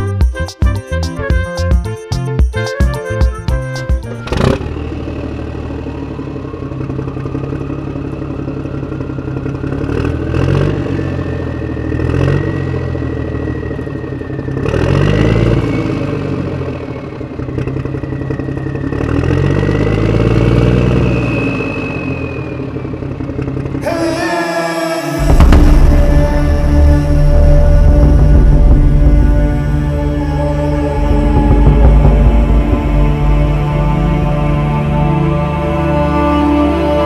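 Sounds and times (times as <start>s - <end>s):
truck engine revving: 4.1s - 24.2s, 25.0s - 37.0s
thin whistle: 20.8s - 23.0s.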